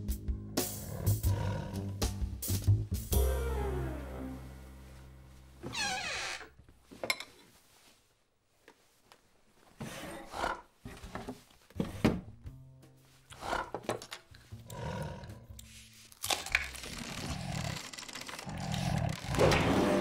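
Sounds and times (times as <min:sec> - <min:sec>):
background music: 0:00.0 - 0:05.6, 0:11.8 - 0:20.0
cartoon bear growling and grunting: 0:00.6 - 0:02.2, 0:13.3 - 0:14.0, 0:14.6 - 0:15.9, 0:16.5 - 0:20.0.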